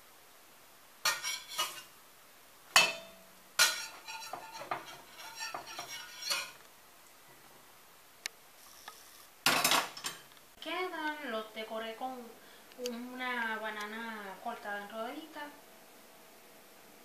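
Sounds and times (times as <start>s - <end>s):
metal clank on pan: 1.0s - 1.9s, 2.7s - 6.6s, 9.5s - 10.3s
metal spatula scraping a pan: 1.0s - 1.9s, 2.8s - 6.6s.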